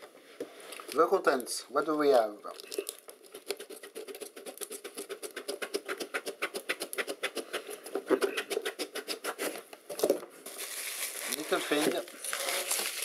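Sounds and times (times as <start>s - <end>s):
cardboard rubbing on cardboard: 3.3s - 9.6s.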